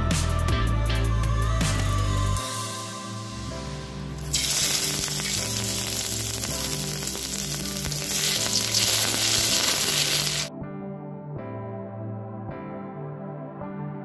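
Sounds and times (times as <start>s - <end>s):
soft background music: 0.0s - 14.0s
food sizzling in hot oil: 4.2s - 10.5s.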